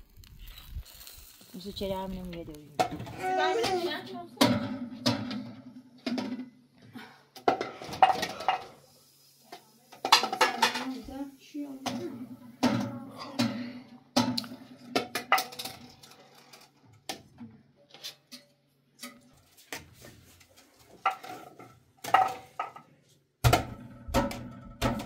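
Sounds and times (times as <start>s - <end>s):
dishes and pots clinking: 7.4s - 8.8s, 9.9s - 11.1s, 11.8s - 16.6s, 20.9s - 25.0s.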